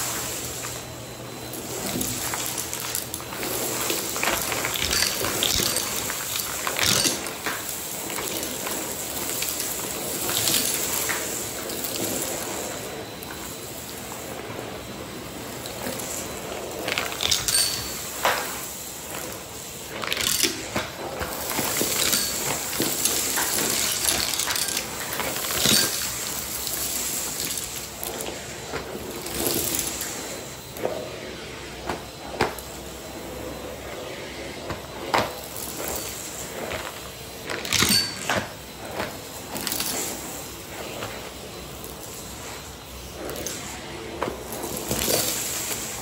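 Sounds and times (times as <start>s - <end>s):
vacuum cleaner running: 0.0s - 46.0s
debris clicking up vacuum wand: 1.7s - 12.5s, 19.8s - 28.1s.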